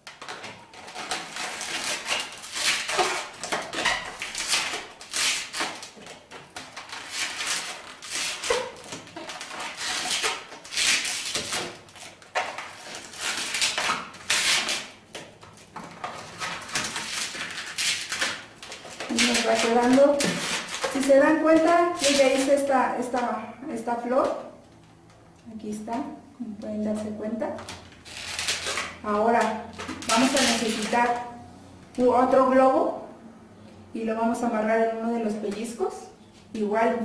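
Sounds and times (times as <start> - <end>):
balloons squeaking and rubbing: 0.0 - 15.0, 15.6 - 22.7, 28.0 - 31.2.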